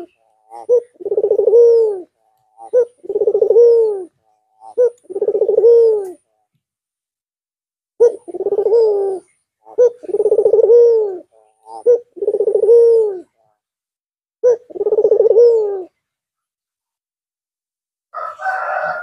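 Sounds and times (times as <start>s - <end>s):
dove cooing: 0.0s - 6.3s, 8.0s - 13.4s, 14.4s - 16.0s.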